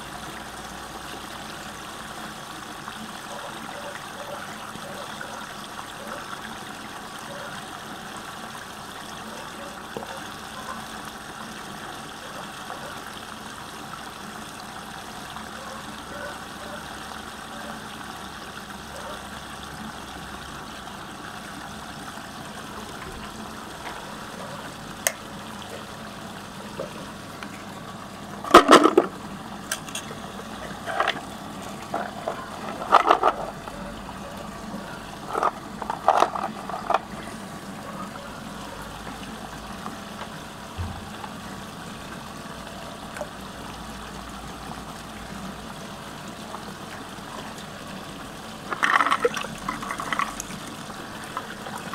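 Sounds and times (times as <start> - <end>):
water swirling down drain: 48.2 - 51.9.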